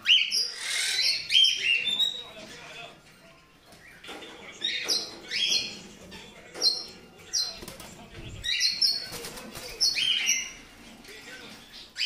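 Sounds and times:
birds sharp downsweeping calls: 0.0s - 2.2s
wings fluttering against cages: 7.4s - 11.0s.

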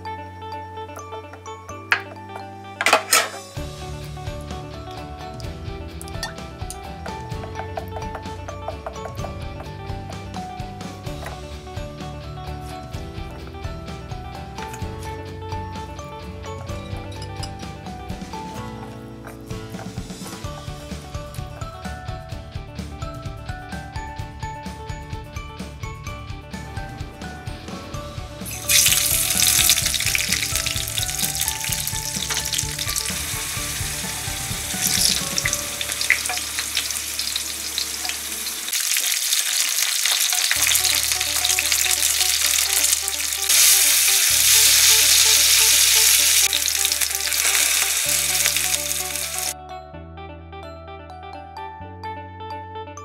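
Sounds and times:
soft background music: 0.0s - 53.0s
vegetables sizzling in hot oil: 28.5s - 49.6s.

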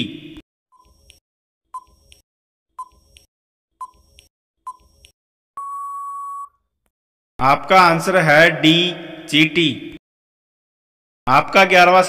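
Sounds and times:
long steady beep: 5.6s - 6.6s.

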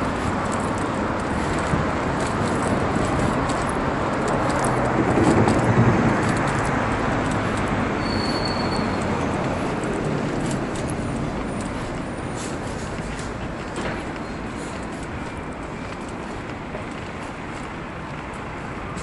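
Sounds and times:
road traffic: 0.0s - 19.0s
vehicle passing: 0.0s - 19.0s
wheelchair rattling on pavement: 0.0s - 19.0s.

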